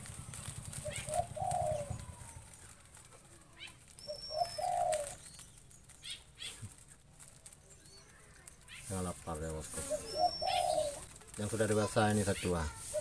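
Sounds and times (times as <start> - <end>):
dove cooing: 0.0 - 5.4, 9.5 - 13.0
wing flutters and rustles: 0.0 - 13.0.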